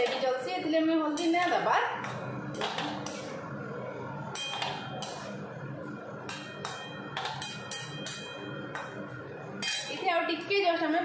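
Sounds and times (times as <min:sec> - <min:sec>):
metal spatula scraping a pan: 0:09.6 - 0:10.0.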